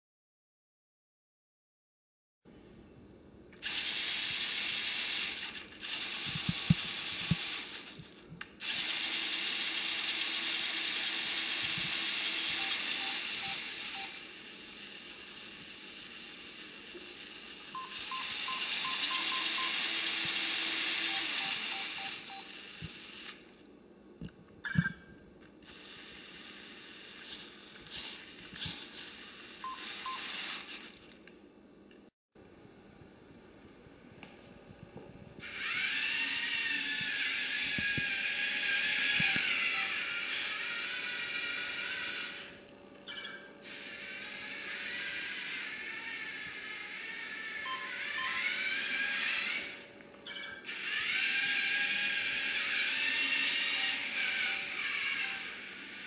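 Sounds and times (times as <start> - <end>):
toy motors whirring: 3.6 - 23.6, 25.6 - 31.3, 35.4 - 42.6, 43.6 - 56.0
electronic beeps: 17.8 - 20.0, 21.0 - 22.5, 24.6 - 25.1.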